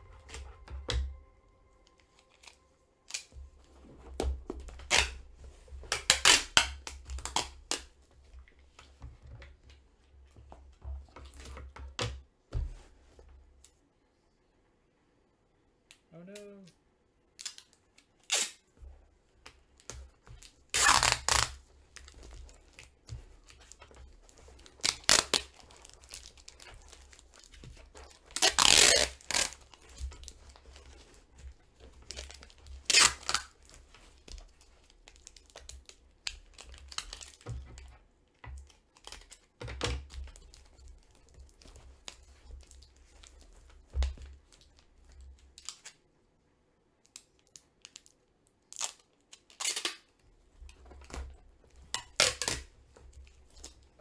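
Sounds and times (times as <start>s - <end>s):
packing tape ripping off roll: 1.9s - 8.0s, 17.4s - 18.7s, 19.4s - 37.9s, 38.6s - 46.0s, 47.1s - 50.2s, 51.9s - 54.0s
tape rustling on cardboard box: 2.1s - 11.7s, 17.4s - 46.0s, 48.7s - 54.0s.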